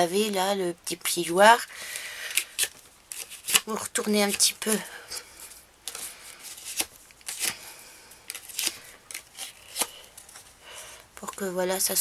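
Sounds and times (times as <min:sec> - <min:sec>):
paper rustling and scraping: 0:02.3 - 0:07.7, 0:08.3 - 0:10.6.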